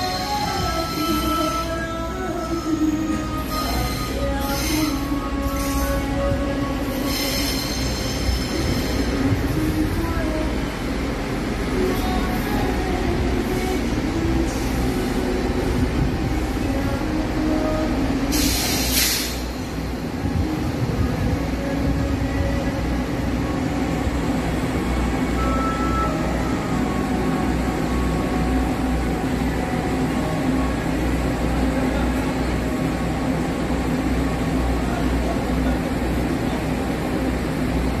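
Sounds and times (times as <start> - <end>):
train low rumble: 0.0 - 38.0
train hiss: 3.4 - 9.6, 17.5 - 20.2.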